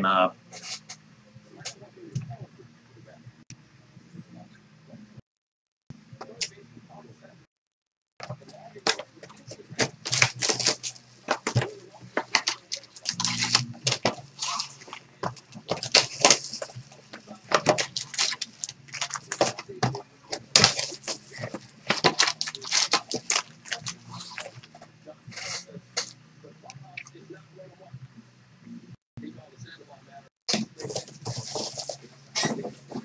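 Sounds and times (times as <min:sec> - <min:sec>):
wrappers crinkling and tearing: 0:09.8 - 0:24.7, 0:30.5 - 0:32.6.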